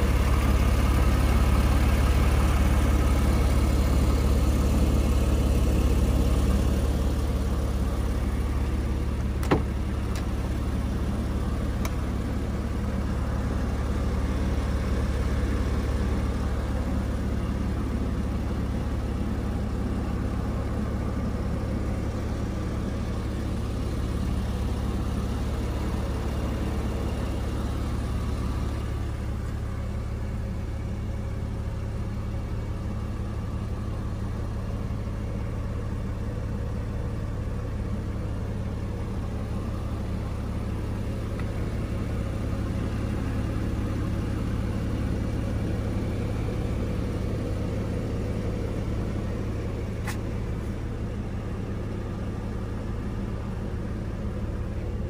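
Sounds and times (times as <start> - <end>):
car engine idling: 0.0 - 55.0
sharp click: 50.0 - 50.3.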